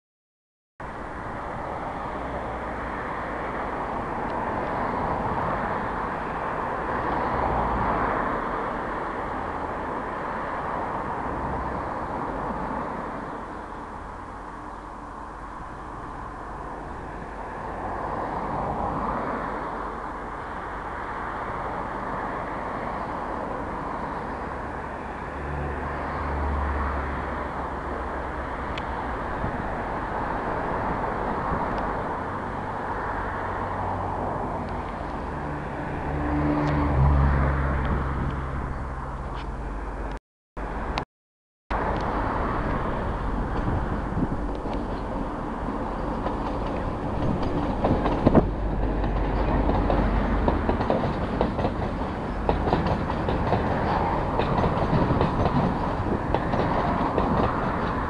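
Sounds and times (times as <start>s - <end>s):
distant locomotive engine drone: 0.8s - 41.0s, 41.7s - 58.0s
outdoor noise: 0.8s - 41.1s, 41.7s - 58.0s.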